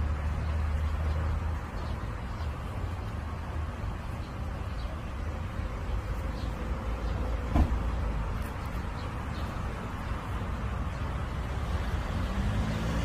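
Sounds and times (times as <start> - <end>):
brief knock: 7.5 - 7.8.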